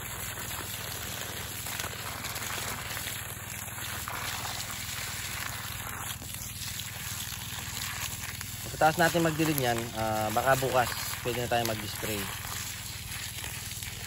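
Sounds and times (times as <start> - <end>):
water gushing from hose onto soil: 0.0 - 14.0.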